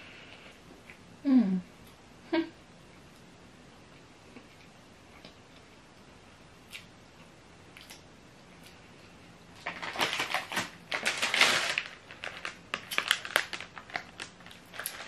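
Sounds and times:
plastic bag crinkling: 9.6 - 15.0.

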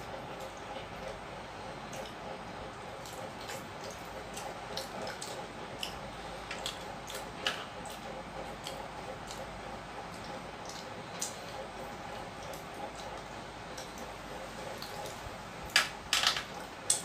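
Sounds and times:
wet chewing and squishing: 2.9 - 15.2.

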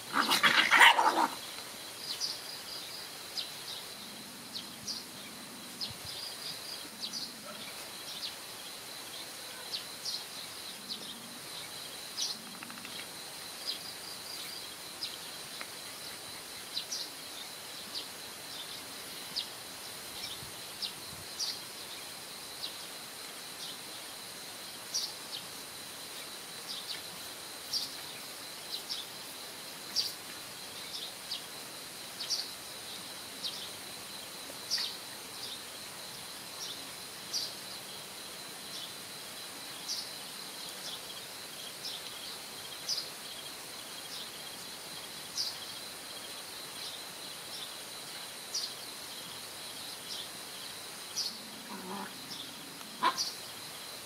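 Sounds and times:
steady high hiss: 0.0 - 54.0
puppy crying: 0.2 - 1.4.

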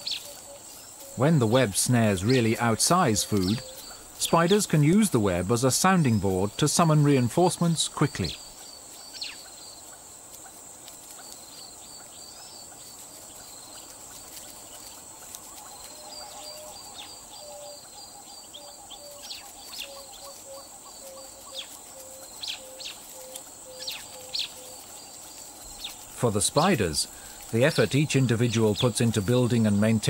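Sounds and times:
insect drone: 0.0 - 30.0
rapid chirps: 0.0 - 30.0
short low calls: 1.2 - 8.4.

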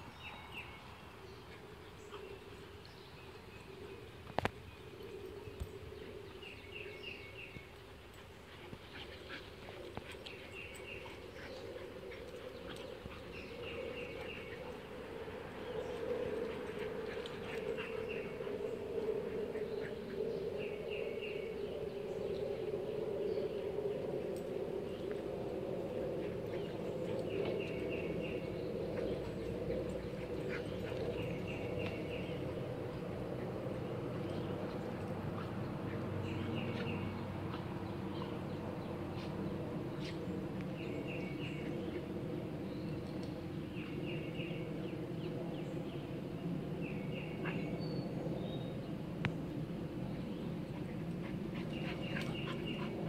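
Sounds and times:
steady low hum: 0.0 - 53.0
faint clicks: 43.0 - 43.4.

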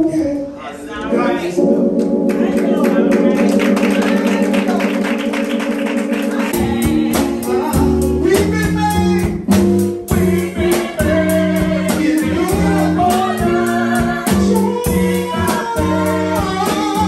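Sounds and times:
organ-style keyboard chords: 0.0 - 17.0
deep bass notes: 1.2 - 17.0.

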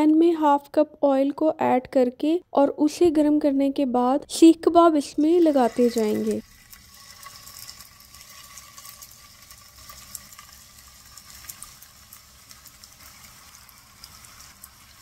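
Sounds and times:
meat sizzling in a frying pan: 5.2 - 15.0.

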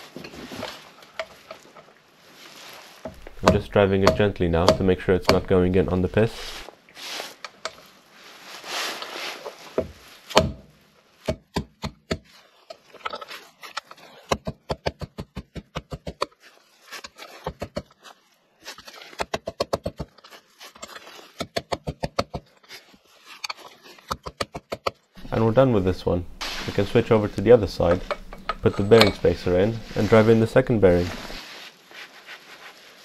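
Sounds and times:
hammer tapping metal: 3.2 - 5.5.

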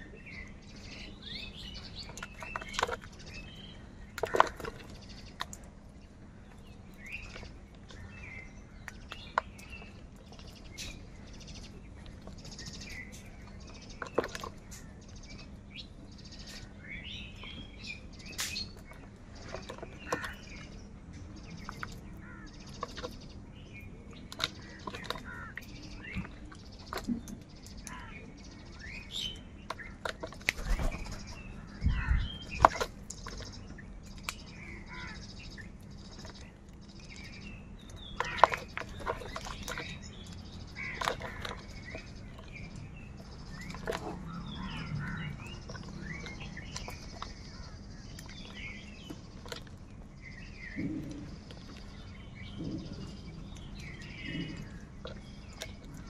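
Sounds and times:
crows cawing: 20.0 - 20.4, 22.2 - 22.6, 25.2 - 25.6, 27.9 - 28.2, 34.7 - 35.3, 40.8 - 41.4.

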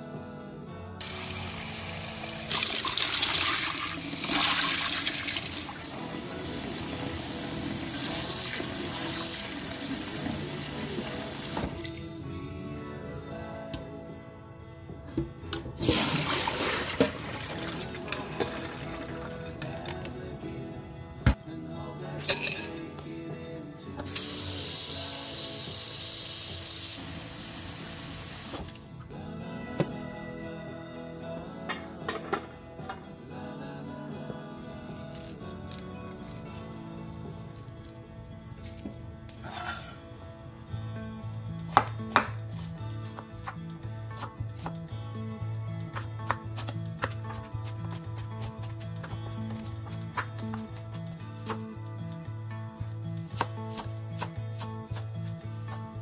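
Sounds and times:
soft background music: 0.0 - 56.0
tap water running and splashing: 1.0 - 12.0, 15.8 - 19.2.

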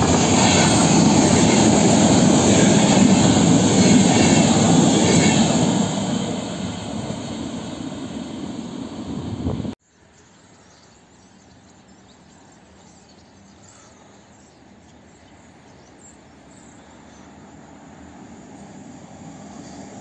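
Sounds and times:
train rumbling: 0.0 - 9.8, 17.4 - 20.0.

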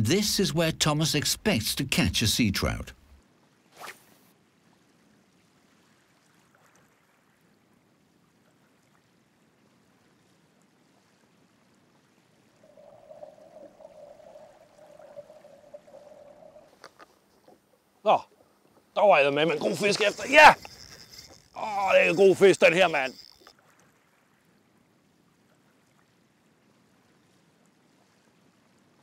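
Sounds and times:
faint lapping of water: 2.6 - 29.0
wavering hum: 12.6 - 17.0, 19.0 - 23.5.

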